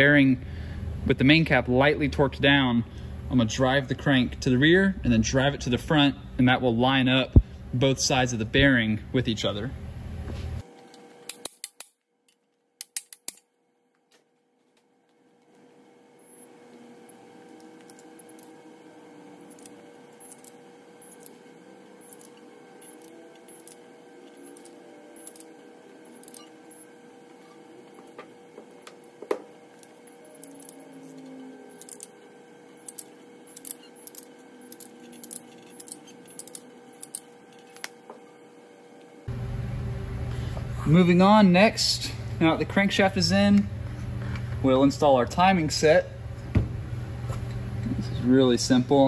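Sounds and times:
steady background hum: 0:00.0 - 0:49.0
metal parts and tools clinking: 0:22.1 - 0:25.5, 0:26.2 - 0:26.5, 0:29.8 - 0:32.2, 0:32.8 - 0:37.9.

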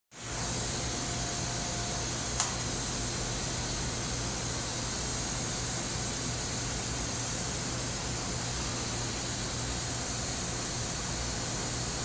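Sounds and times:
equipment fan hiss and hum: 0:00.1 - 0:12.0
sharp click: 0:02.4 - 0:02.6.

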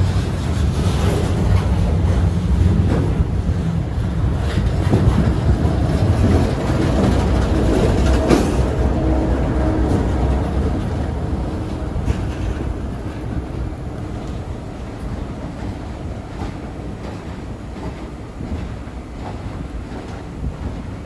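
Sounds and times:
diesel locomotive engine: 0:00.0 - 0:21.0
train wheels rumbling on rail: 0:00.0 - 0:21.0.

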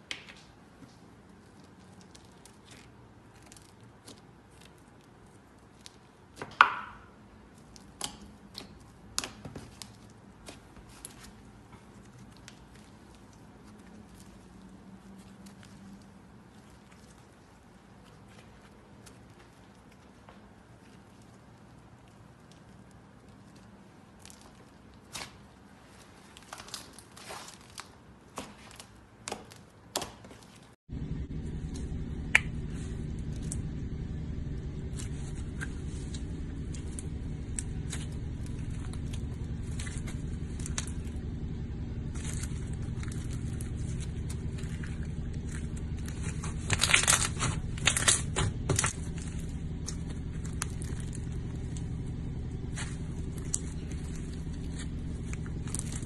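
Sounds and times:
slime tearing: 0:01.4 - 0:06.8, 0:07.5 - 0:30.6, 0:31.3 - 0:56.0
slime crackling and popping: 0:01.4 - 0:25.6, 0:31.3 - 0:56.0
low steady hum: 0:30.9 - 0:56.0.

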